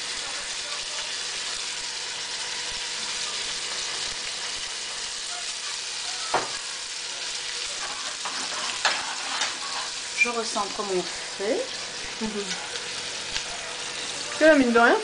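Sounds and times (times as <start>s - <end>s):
prawns sizzling in a frying pan: 0.0s - 15.0s.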